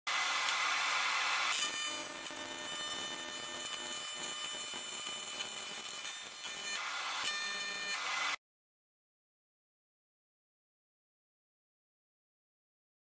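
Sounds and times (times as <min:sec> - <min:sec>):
welding arc buzzing hiss: 0:00.1 - 0:08.4.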